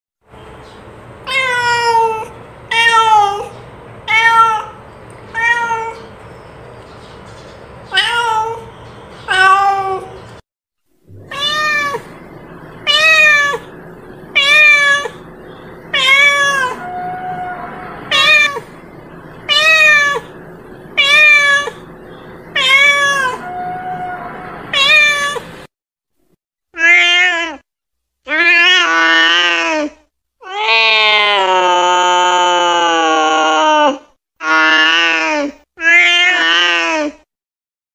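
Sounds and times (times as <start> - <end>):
cat meowing: 1.3 - 3.5, 4.1 - 6.1, 7.9 - 8.7, 9.3 - 10.2, 11.1 - 15.3, 15.9 - 20.4, 21.0 - 21.9, 22.5 - 25.6, 26.8 - 27.6, 35.8 - 37.0.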